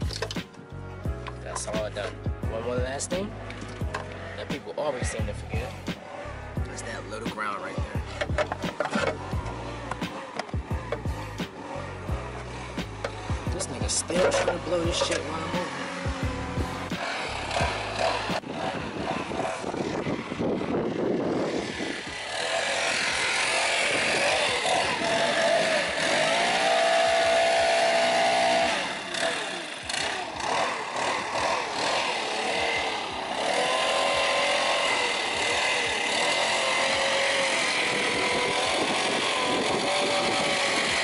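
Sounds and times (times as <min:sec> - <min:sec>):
leaf blower engine revving: 0:00.0 - 0:41.0.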